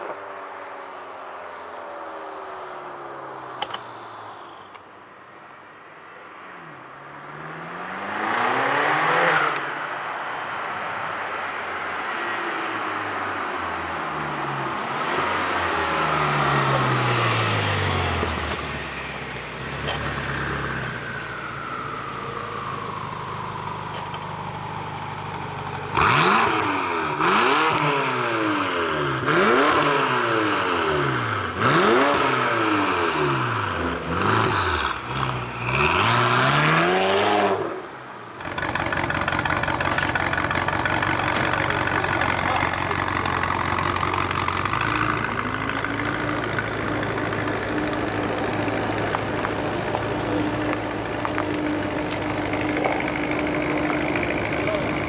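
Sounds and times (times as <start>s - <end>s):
car engine revving hard: 7.3s - 9.6s, 25.9s - 37.8s
car engine idling: 13.7s - 27.3s, 38.2s - 55.0s.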